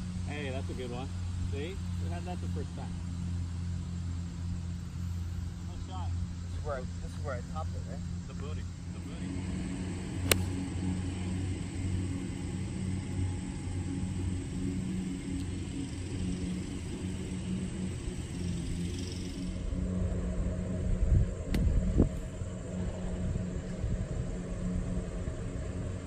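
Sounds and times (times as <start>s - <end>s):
low mechanical hum: 0.0s - 26.0s
golf club striking ball: 9.9s - 11.7s
club thudding into sand: 10.2s - 10.6s.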